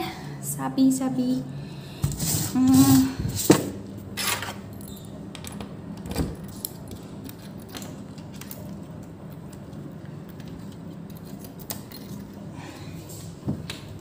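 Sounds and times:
keys jangling in lock: 0:11.1 - 0:12.4.

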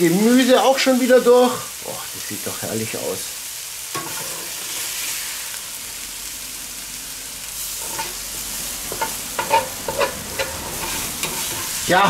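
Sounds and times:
vegetables sizzling in pot: 0:00.0 - 0:12.0
spoon scraping and knocking pot: 0:08.9 - 0:11.8.

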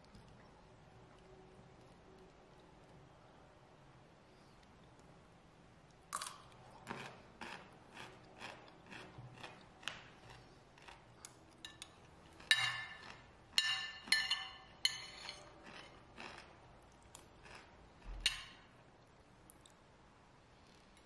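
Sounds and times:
chewing: 0:06.2 - 0:13.3, 0:15.3 - 0:17.7
metal spoon scraping ceramic plate: 0:13.6 - 0:16.0.

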